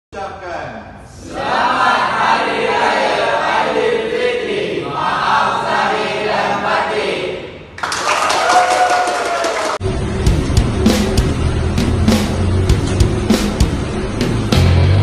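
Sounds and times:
group singing in unison: 0:01.1 - 0:07.7
people clapping: 0:07.8 - 0:09.8.

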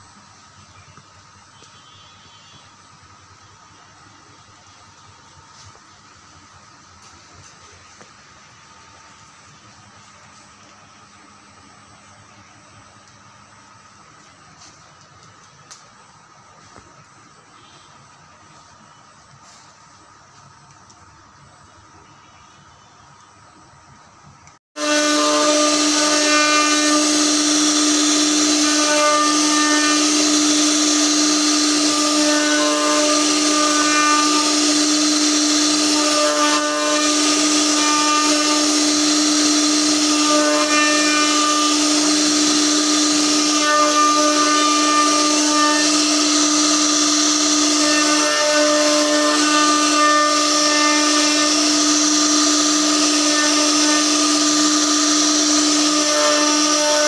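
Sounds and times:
router spindle whine: 0:00.0 - 0:57.0
bit cutting wood: 0:24.8 - 0:57.0.

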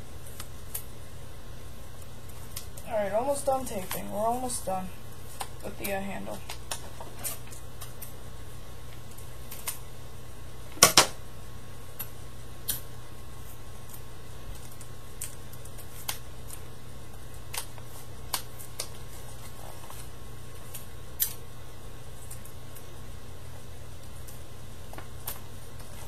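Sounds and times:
paper and tape crackling: 0:00.2 - 0:01.0, 0:01.9 - 0:08.2, 0:08.9 - 0:09.9, 0:11.9 - 0:21.4, 0:22.1 - 0:23.0.

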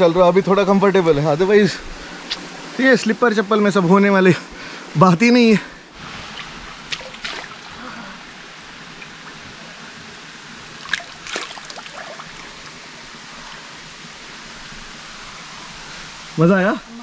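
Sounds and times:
stream running over rocks: 0:05.3 - 0:17.0
water splashing: 0:06.0 - 0:16.0.

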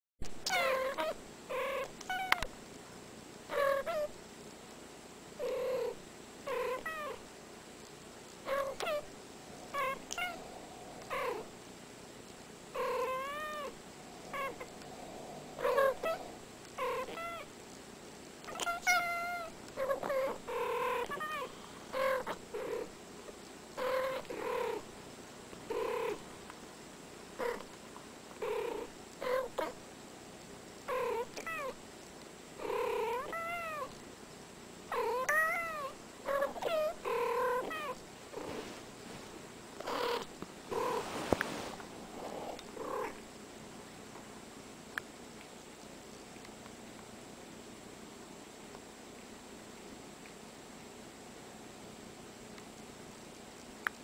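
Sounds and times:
cats meowing: 0:00.4 - 0:02.4, 0:08.5 - 0:11.5, 0:12.8 - 0:17.5, 0:18.5 - 0:22.7, 0:33.0 - 0:34.0, 0:34.9 - 0:38.0.

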